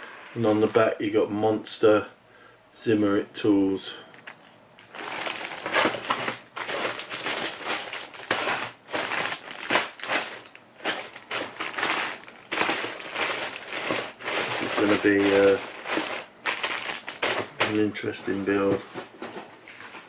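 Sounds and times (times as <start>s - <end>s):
plastic bags crinkling: 4.2s - 20.0s.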